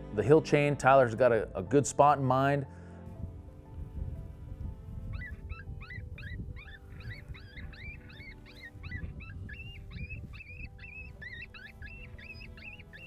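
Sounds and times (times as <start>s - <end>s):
wind rumble on microphone: 3.0s - 13.0s
animal distress call cries: 5.1s - 13.0s.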